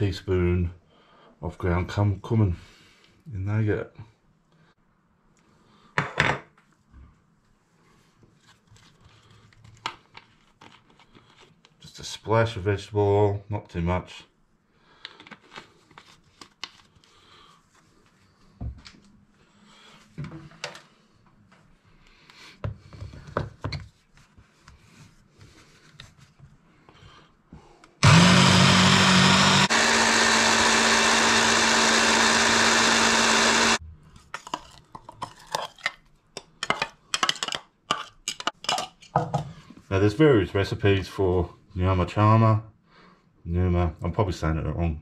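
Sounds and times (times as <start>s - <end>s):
hand blender chopping: 28.0s - 33.8s.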